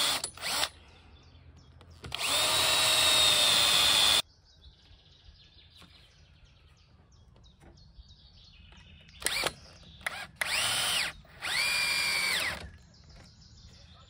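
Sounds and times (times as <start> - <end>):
cordless drill driving screws: 0.0 - 0.7, 2.0 - 4.2, 9.2 - 12.8
birds chirping faintly: 0.4 - 14.0.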